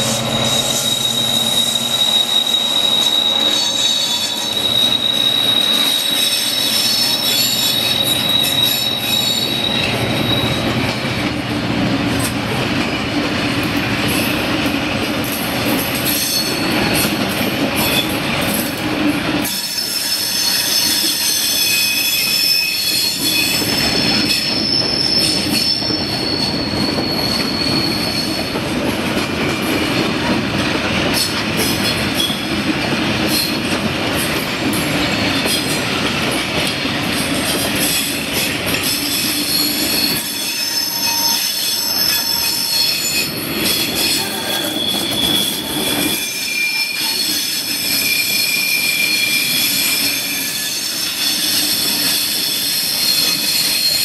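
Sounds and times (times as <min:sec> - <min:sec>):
high-pitched wheel squeal: 0:00.0 - 0:11.1, 0:16.1 - 0:17.1, 0:19.4 - 0:28.6, 0:38.8 - 0:54.0
train wheels rumbling on rails: 0:00.0 - 0:54.0.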